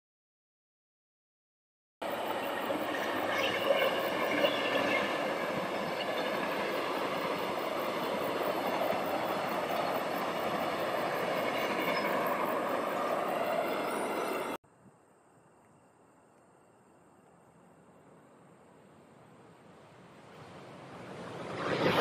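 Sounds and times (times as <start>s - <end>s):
train wheels rushing on rails: 2.0s - 14.6s
faint high squeal: 2.6s - 14.6s.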